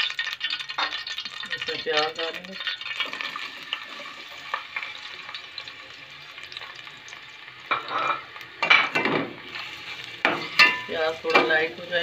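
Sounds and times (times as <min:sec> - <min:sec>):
oil crackles: 0:00.0 - 0:08.7
onions sizzling in hot oil: 0:00.0 - 0:12.0
metal spoon scraping pot: 0:09.6 - 0:11.5.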